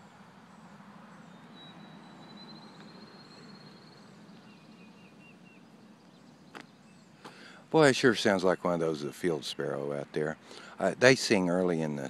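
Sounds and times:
faint high bird chirps: 0.0s - 7.6s
sparrow trilling: 0.0s - 7.6s.

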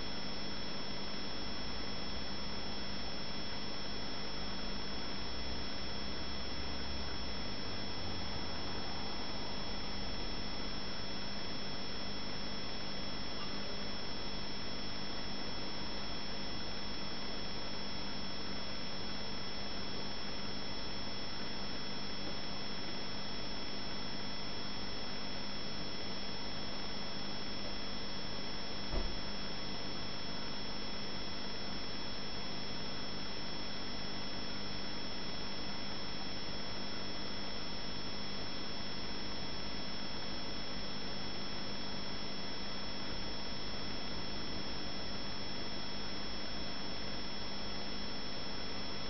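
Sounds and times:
brief low thump: 28.9s - 29.3s.

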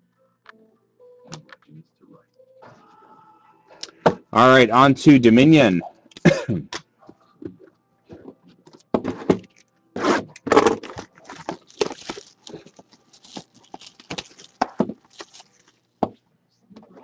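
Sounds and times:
plastic wrap crinkling and tearing: 10.6s - 15.9s.

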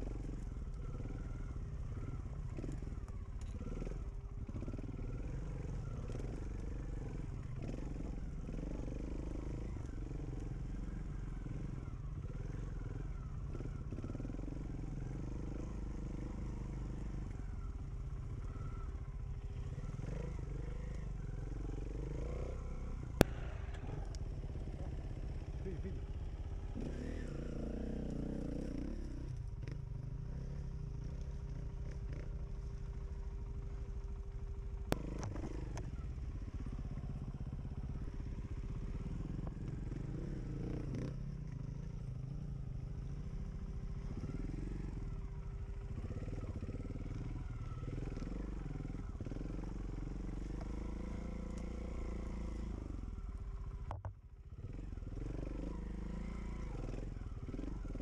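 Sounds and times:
dirt bike engine revving: 19.5s - 33.7s, 35.0s - 53.2s, 54.6s - 58.0s.

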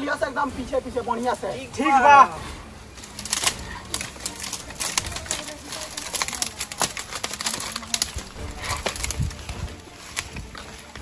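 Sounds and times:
footsteps through dry leaves: 2.4s - 11.0s.

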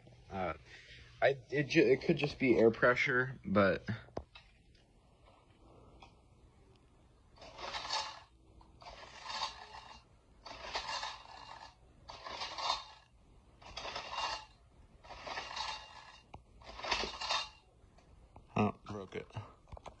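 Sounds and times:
pull cord scraping rasp: 7.4s - 17.6s.

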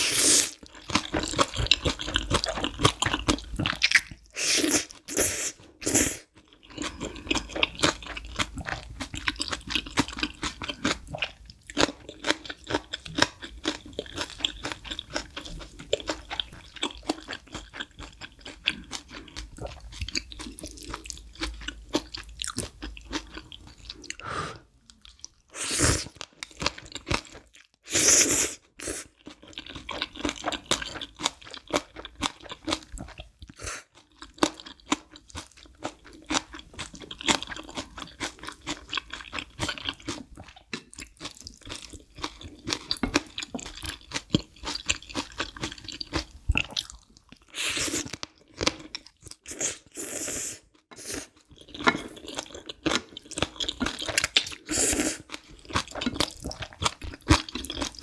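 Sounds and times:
slurping noodles: 0.0s - 0.6s, 25.5s - 26.2s, 49.5s - 51.4s, 54.0s - 55.3s
chewing and crunching food: 0.0s - 58.0s.

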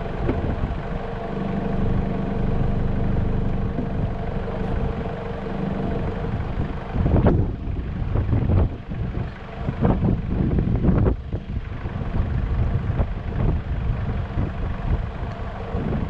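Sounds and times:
car engine idling: 0.0s - 16.0s
wind gusts on microphone: 6.0s - 16.0s.

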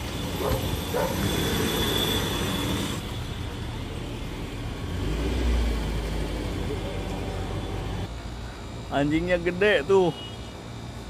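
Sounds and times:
high steady whine: 0.0s - 11.0s
street traffic: 0.0s - 11.0s.

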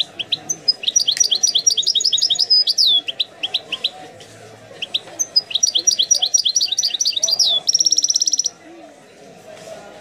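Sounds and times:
goldfinch twittering song: 0.0s - 4.0s, 4.8s - 8.5s.

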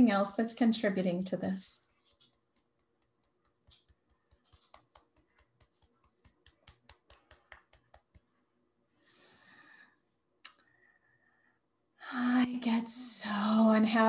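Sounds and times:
fingertip taps on hand: 2.8s - 8.3s.

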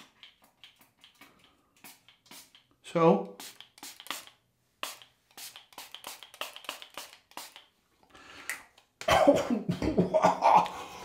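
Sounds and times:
pump mister hissing sprays: 1.8s - 2.7s, 3.4s - 7.7s
person coughing: 9.0s - 10.6s.

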